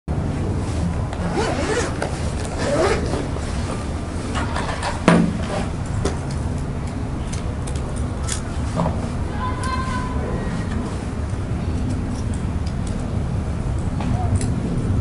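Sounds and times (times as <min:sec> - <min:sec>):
low background rumble: 0:00.1 - 0:15.0
zipper opening: 0:01.2 - 0:03.6.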